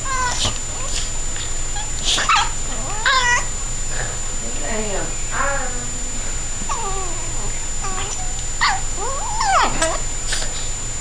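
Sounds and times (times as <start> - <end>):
dogs whining yelps: 0.0 - 1.1, 1.8 - 3.5, 7.8 - 10.0.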